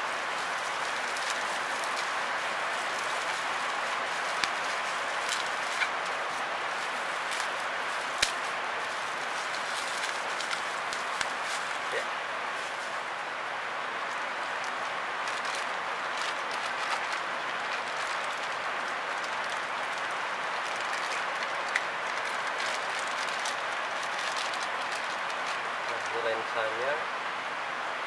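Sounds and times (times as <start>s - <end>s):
plastic bag crinkling: 0.0s - 13.1s, 14.0s - 26.1s
background hiss: 0.0s - 28.0s.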